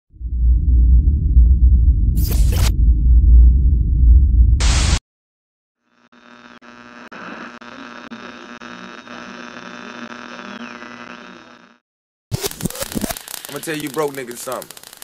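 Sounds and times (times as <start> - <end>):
deep rumble: 0.1 - 5.0
electric buzz and hum: 0.2 - 5.0, 5.8 - 15.0.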